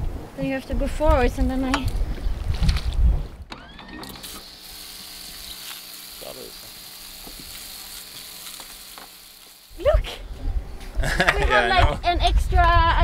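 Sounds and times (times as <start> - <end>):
hose spraying water: 4.0 - 10.2.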